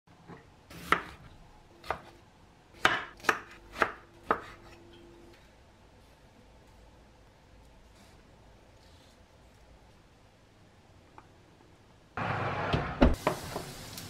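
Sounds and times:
knife chopping on wooden board: 0:02.8 - 0:04.8.

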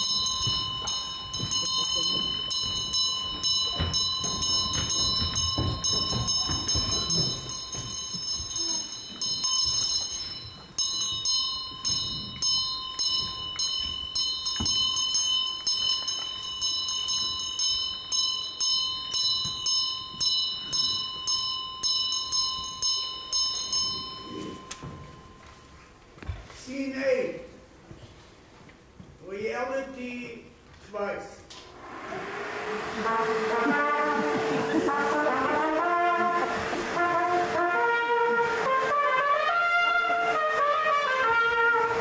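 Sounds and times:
bell ringing: 0:00.0 - 0:26.0.

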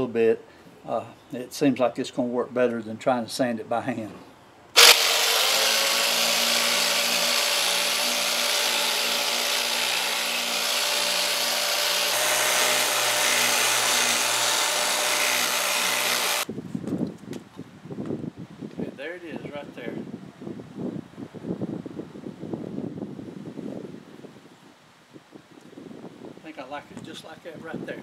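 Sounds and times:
electric sander sanding wood: 0:04.8 - 0:16.5.

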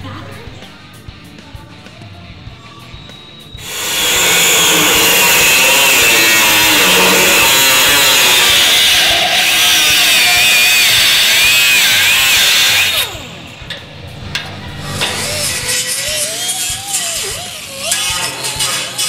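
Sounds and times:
cut-off wheel shrieking through steel: 0:03.5 - 0:13.5, 0:14.4 - 0:19.0
wheel spinning down: 0:03.6 - 0:18.3.

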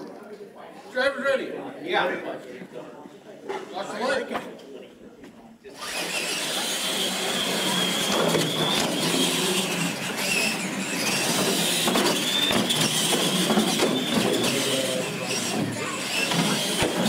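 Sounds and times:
electric motors whining: 0:05.7 - 0:17.0
toy trucks rattling and rumbling: 0:05.8 - 0:17.0.

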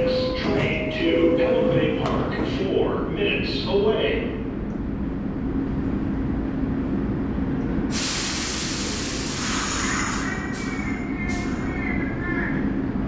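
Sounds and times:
subway train humming: 0:00.0 - 0:13.0
air brakes hissing: 0:07.9 - 0:11.7.

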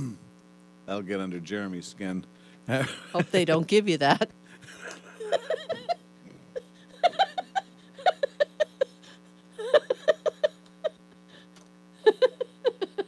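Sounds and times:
steady low hum: 0:00.0 - 0:13.0
people laughing hard: 0:04.6 - 0:06.0, 0:06.6 - 0:11.0.

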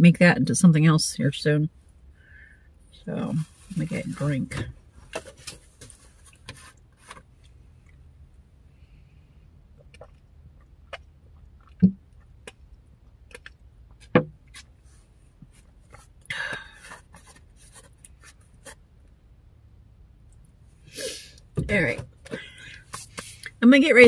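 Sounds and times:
loud gulping swallows: 0:09.6 - 0:12.5
breath out: 0:20.9 - 0:21.4.

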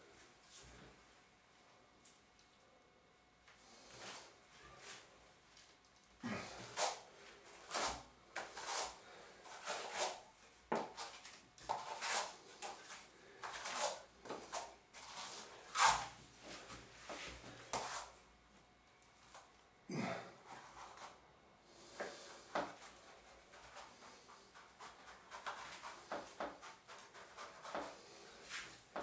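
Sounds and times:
comb tool rasping on wet plaster: 0:07.7 - 0:10.2.

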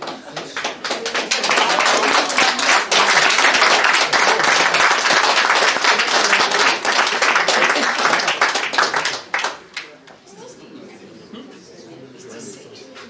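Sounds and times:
crowd applauding: 0:00.0 - 0:10.0.

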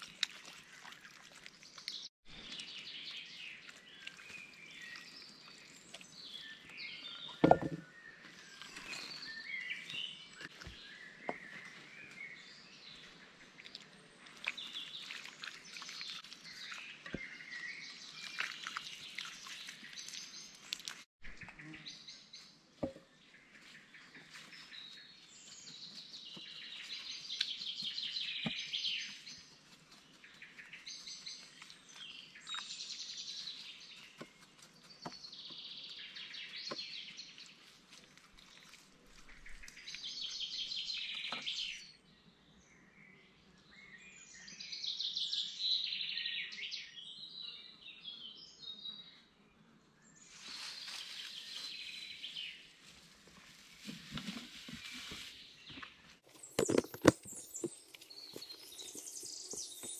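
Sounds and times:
handling knocks at table: 0:07.4 - 0:07.8
birds chirping and singing: 0:54.2 - 0:59.9.

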